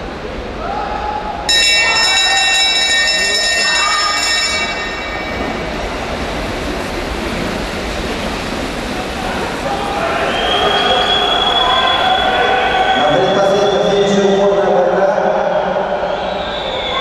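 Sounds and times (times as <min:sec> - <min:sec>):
lap bell ringing: 0:01.5 - 0:06.5.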